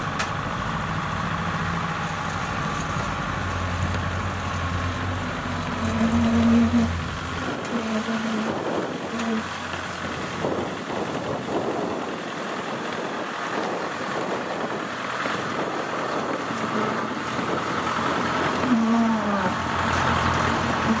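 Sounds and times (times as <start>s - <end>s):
tracked carrier engine running: 0.0s - 21.0s
wind on microphone: 5.8s - 9.5s, 10.1s - 19.6s.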